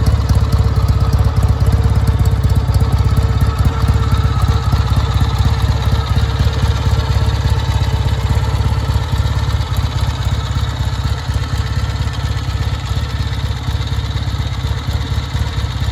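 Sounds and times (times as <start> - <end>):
motorcycle engine idling: 0.0 - 15.9.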